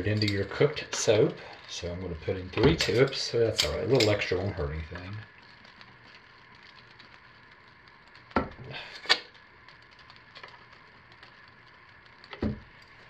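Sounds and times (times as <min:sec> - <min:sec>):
sharp clicks of utensils: 0:00.1 - 0:01.7, 0:02.5 - 0:06.2, 0:08.4 - 0:10.6.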